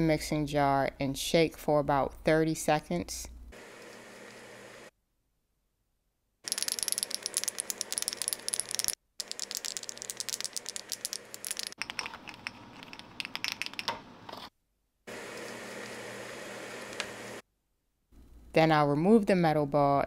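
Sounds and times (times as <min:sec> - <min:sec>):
mixing ball rattling in jar: 0:06.5 - 0:14.0.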